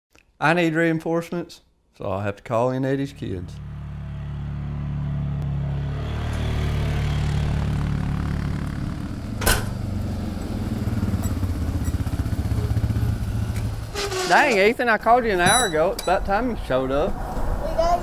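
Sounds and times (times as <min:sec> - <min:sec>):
atv engines running: 0:02.9 - 0:16.4.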